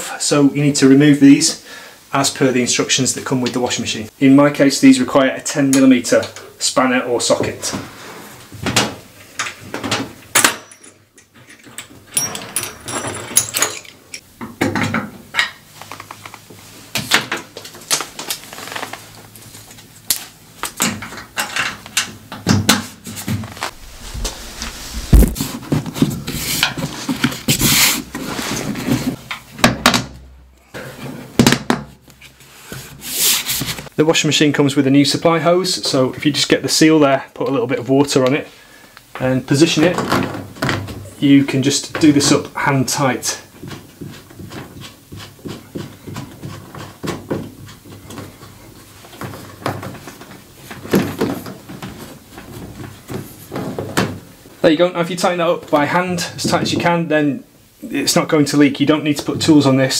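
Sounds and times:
heavy thud: 0:23.7 - 0:25.7.

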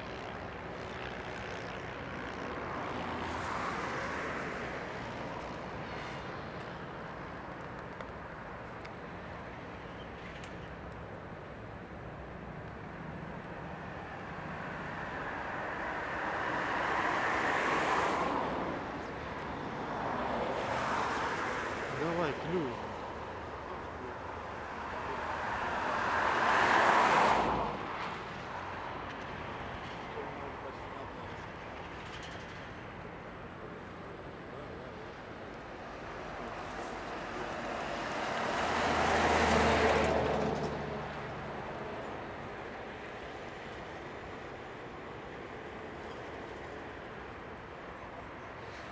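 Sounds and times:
vehicle passing by: 0:37.5 - 0:41.6.

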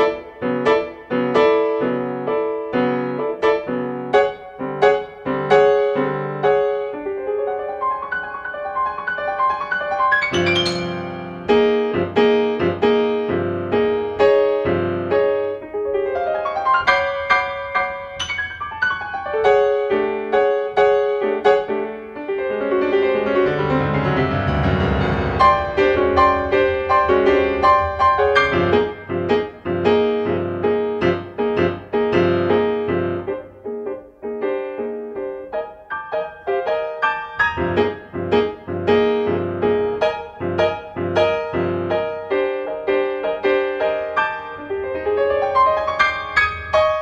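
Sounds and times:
solo piano fast repeated notes: 0:00.0 - 0:47.0
piano tone cluster ringing: 0:08.7 - 0:11.9.

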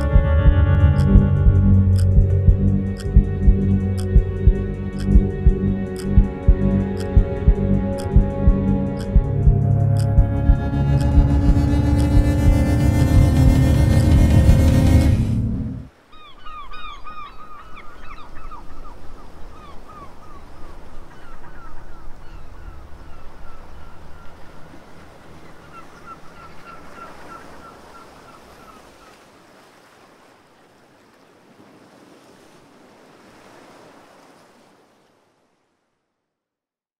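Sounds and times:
steady rushing noise: 0:01.0 - 0:15.9.

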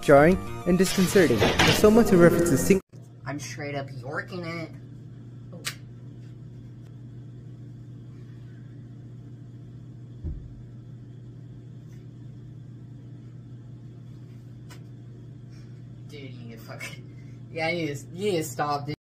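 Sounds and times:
low hum: 0:00.0 - 0:19.0
dull thump: 0:10.2 - 0:10.6.

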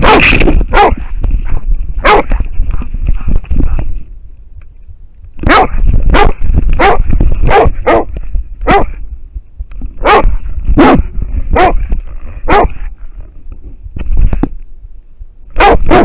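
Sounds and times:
dog barking: 0:00.0 - 0:02.9, 0:05.4 - 0:09.0, 0:10.0 - 0:11.8, 0:12.4 - 0:12.8, 0:15.6 - 0:16.0
low rumble of mic movement: 0:00.0 - 0:16.0.

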